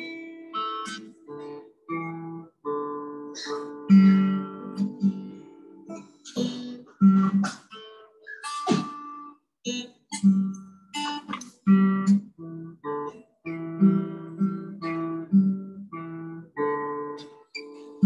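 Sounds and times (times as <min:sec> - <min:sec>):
acoustic guitar playing a waltz: 0:00.0 - 0:18.0.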